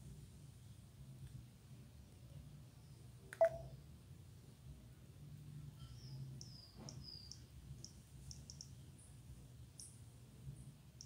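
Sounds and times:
phone keypad button clicks: 3.4s - 3.7s.

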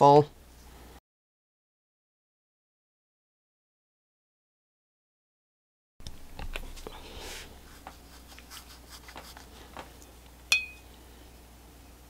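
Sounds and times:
brush scratching on paper: 7.1s - 9.9s
brush clinking glass jar: 10.5s - 10.8s.

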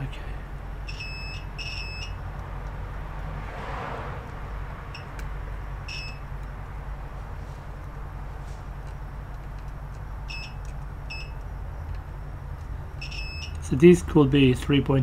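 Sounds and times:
steady low hum: 0.0s - 15.0s
multimeter beeps: 0.8s - 2.2s, 5.9s - 6.3s, 10.2s - 11.4s, 13.0s - 13.6s.

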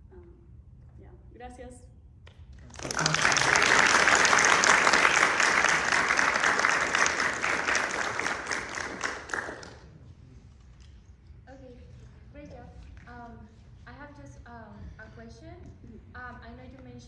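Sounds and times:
audience clapping: 2.6s - 10.0s.

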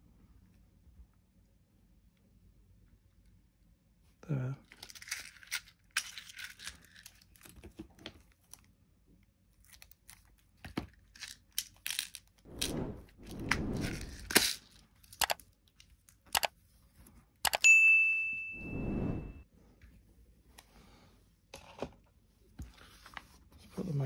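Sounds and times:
bright ding: 17.6s - 19.4s.

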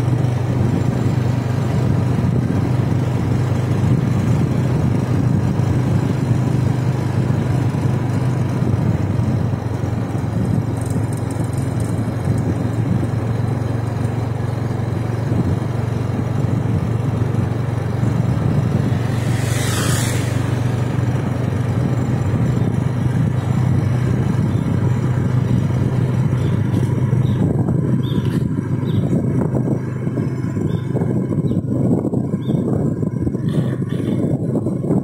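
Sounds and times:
vehicle engine cruising: 0.0s - 35.0s
wind and road noise: 0.0s - 35.0s
short hissing swish: 18.8s - 21.1s.

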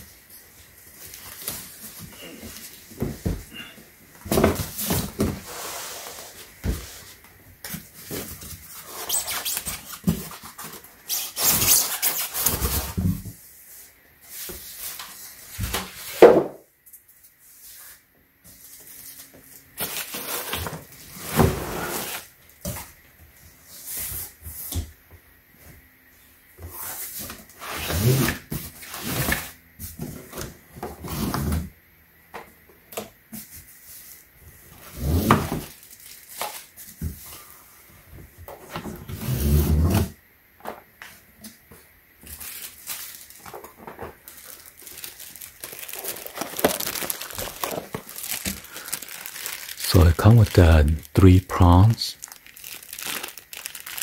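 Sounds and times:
cardboard and plastic packaging rustling: 0.1s - 13.5s, 18.5s - 24.3s, 33.4s - 39.2s, 40.6s - 54.0s.

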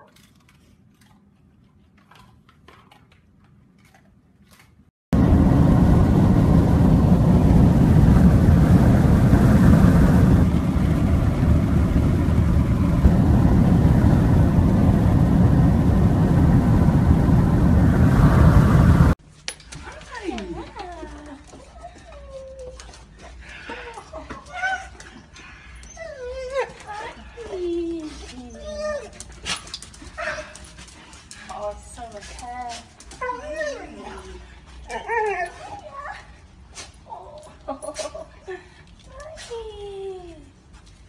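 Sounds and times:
wind and road noise in car: 5.2s - 19.2s.

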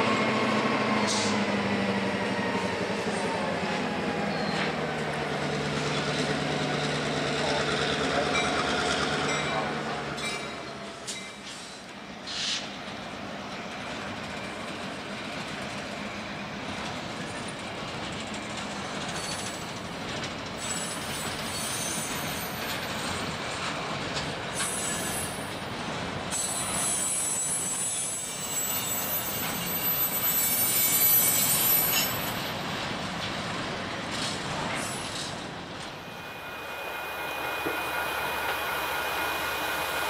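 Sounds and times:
freight cars rumbling on rails: 0.0s - 12.2s, 12.8s - 40.0s
high-pitched wheel squeal: 26.4s - 32.5s.

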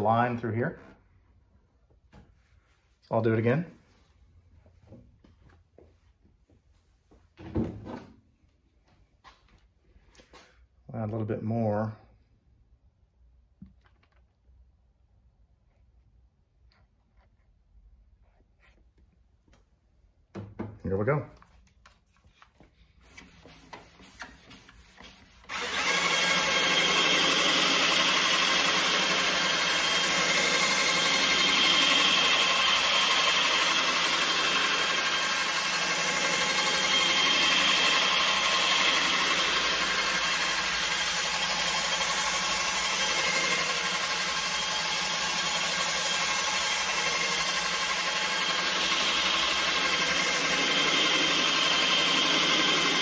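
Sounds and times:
cordless drill polishing: 23.0s - 53.0s.

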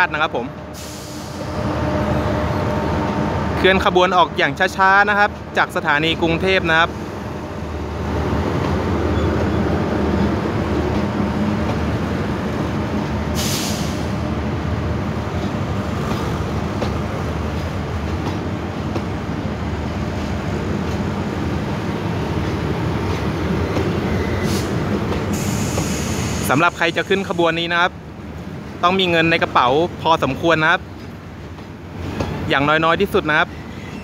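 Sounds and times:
train wheels rumbling on rails: 0.0s - 34.0s
brief hiss: 25.3s - 26.5s.

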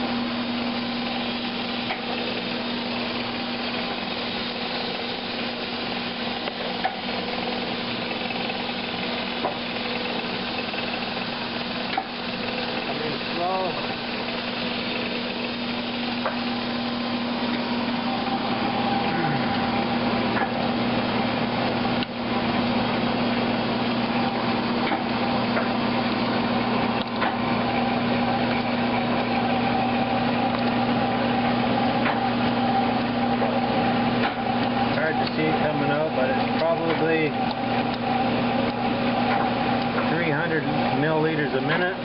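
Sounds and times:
seed grinding noise: 0.0s - 20.8s
oil press machine hum: 0.0s - 42.0s.

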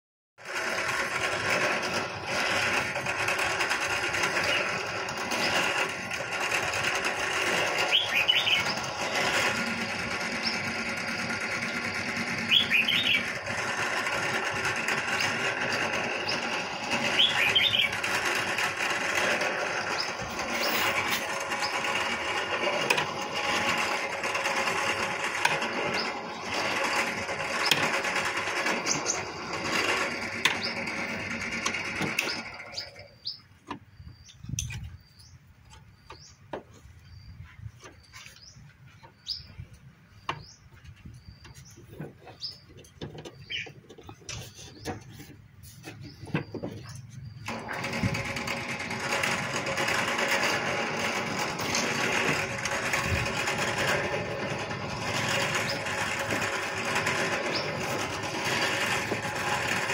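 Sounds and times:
bird chirps: 7.9s - 8.7s, 12.4s - 13.3s, 17.1s - 18.0s, 32.7s - 45.2s.

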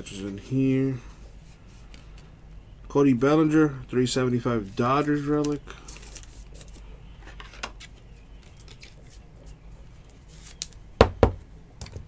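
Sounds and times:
card packaging rustling: 4.7s - 10.6s.

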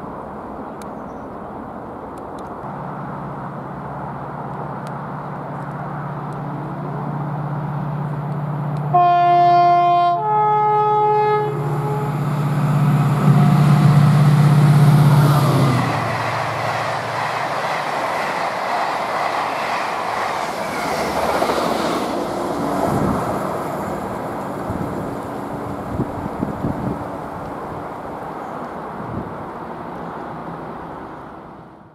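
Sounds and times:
diesel locomotive engine passing: 1.6s - 31.9s
two-tone train horn: 8.9s - 16.2s.

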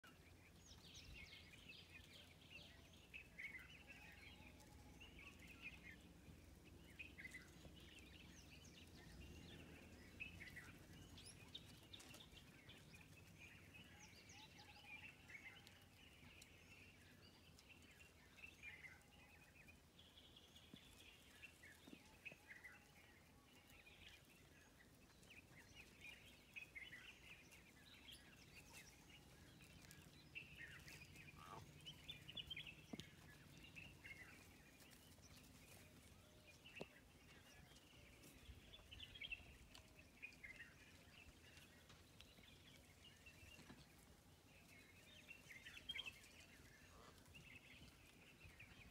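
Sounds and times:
small birds chirping: 0.0s - 48.9s.

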